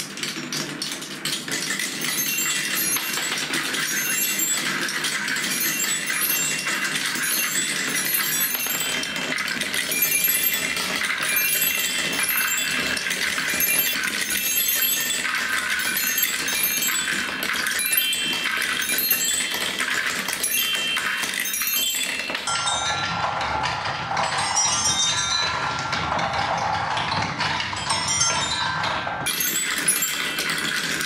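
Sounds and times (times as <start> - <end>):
marbles rolling on wooden tracks: 0.0 - 31.0
chime tube ringing notes: 20.4 - 23.4.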